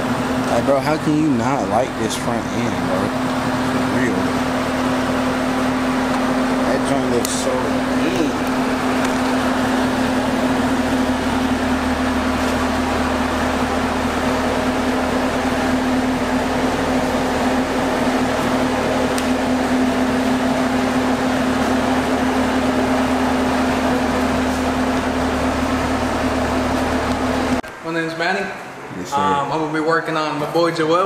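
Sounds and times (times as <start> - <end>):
mechanical hum with low drone: 0.0 - 31.0.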